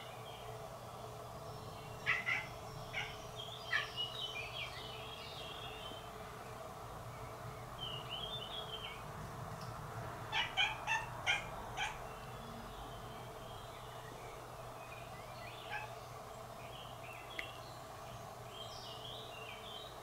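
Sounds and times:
magpies rattling alarm chatter: 1.9s - 5.1s, 10.3s - 12.6s, 15.0s - 16.3s
cat cries: 2.0s - 3.2s, 10.3s - 12.0s.

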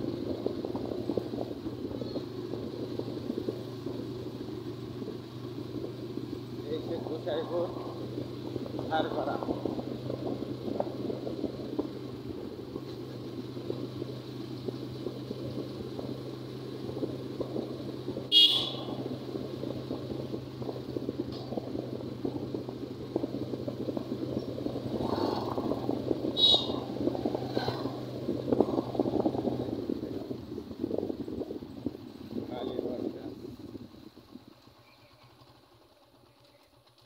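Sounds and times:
vehicle running along road: 0.0s - 37.0s
short horn beeps: 18.3s - 19.0s.

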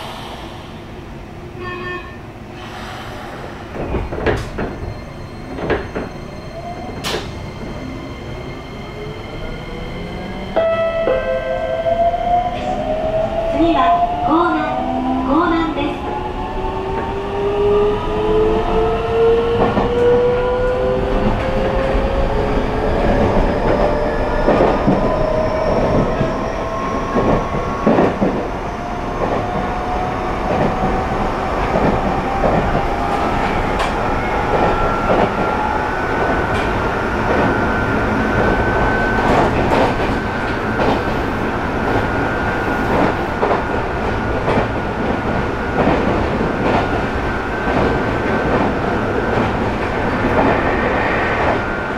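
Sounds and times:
train running rumble: 12.6s - 51.9s.

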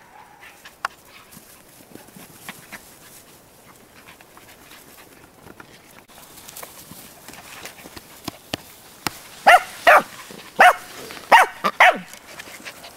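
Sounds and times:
light ticks and rustles: 0.4s - 12.9s
puppies scampering on grass: 0.4s - 12.9s
soft panting: 12.1s - 12.9s.

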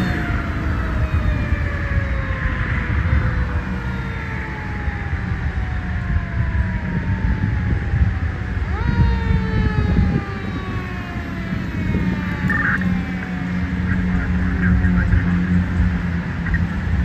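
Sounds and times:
fire engine siren: 0.0s - 17.0s.

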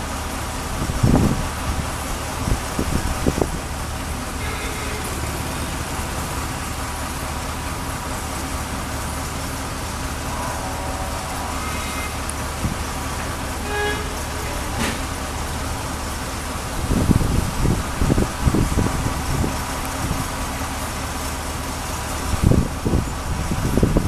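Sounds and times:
heavy diesel engines droning: 0.0s - 24.0s.

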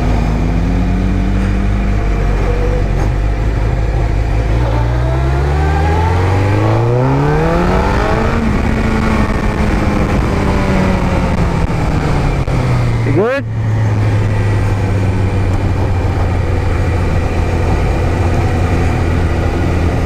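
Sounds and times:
motorcycle engine revving: 0.0s - 20.0s
wind noise on microphone: 5.9s - 13.0s.

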